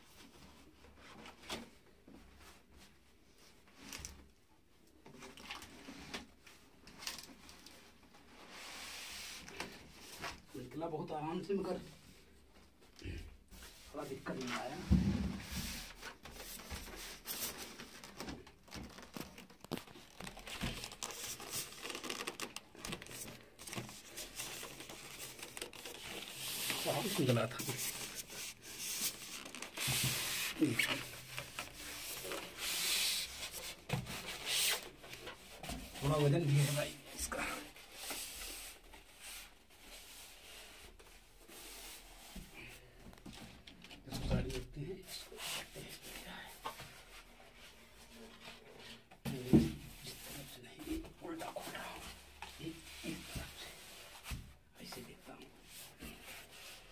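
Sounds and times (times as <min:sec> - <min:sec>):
foam packing rubbing and scraping: 0:15.4 - 0:42.4
plastic bag crinkling: 0:17.7 - 0:32.6
foam scraping against cardboard: 0:23.1 - 0:35.0.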